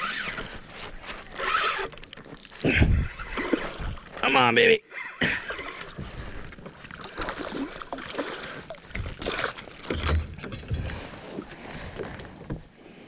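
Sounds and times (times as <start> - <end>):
rod and reel handling noise: 0.0 - 4.2, 5.4 - 10.6
water splashing: 5.6 - 12.0.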